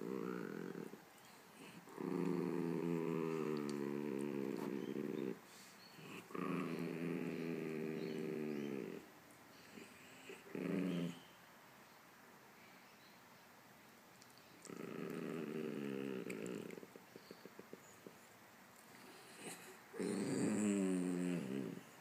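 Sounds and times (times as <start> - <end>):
small dog growling: 0.0 - 11.3, 14.6 - 18.1, 18.9 - 22.0.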